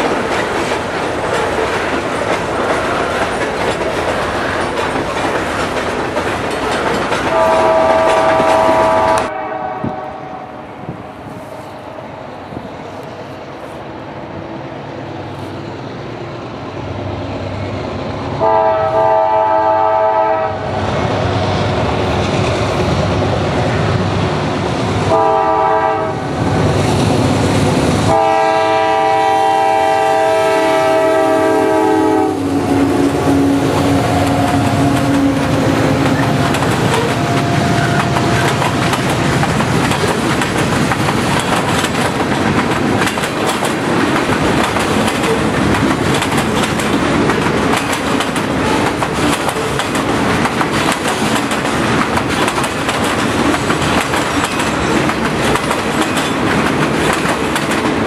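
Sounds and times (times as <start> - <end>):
train wheels clacking on rails: 0.0 - 10.0, 21.7 - 58.0
diesel locomotive rumble: 0.0 - 58.0
locomotive air horn blasts: 7.3 - 10.7, 18.4 - 20.7, 25.1 - 26.3, 28.1 - 35.9.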